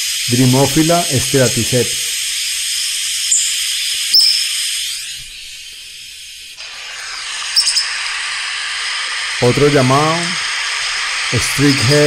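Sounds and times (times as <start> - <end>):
recording hiss: 0.0 - 12.0
bird calling short high notes: 3.3 - 6.0, 7.5 - 8.0.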